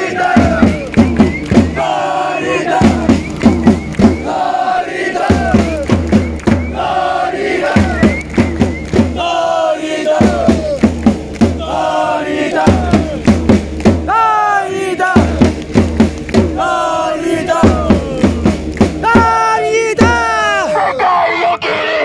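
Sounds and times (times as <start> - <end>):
crowd chanting in unison: 0.0 - 13.4, 14.0 - 15.5, 16.3 - 18.4
steady drum beat: 0.0 - 20.7.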